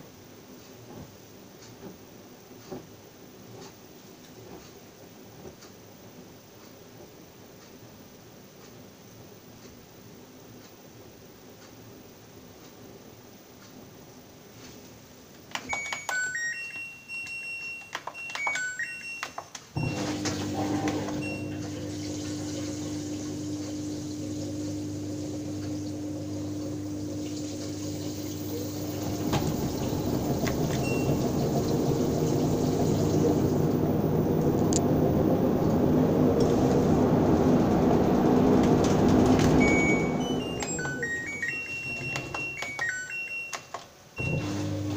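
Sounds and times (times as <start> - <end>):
washing machine hum: 0.0 - 8.0, 19.8 - 43.4, 44.0 - 44.9
washing machine beeps: 15.6 - 44.9
water rushing into drum: 19.8 - 40.4.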